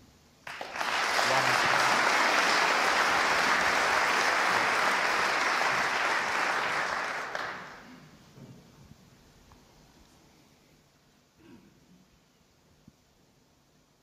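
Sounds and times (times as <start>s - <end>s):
audience applauding: 0.4s - 8.0s.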